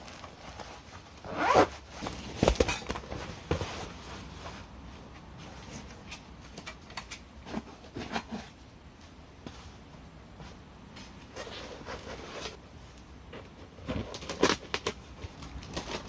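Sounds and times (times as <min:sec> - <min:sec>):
fabric bag rustling: 0:00.0 - 0:04.7.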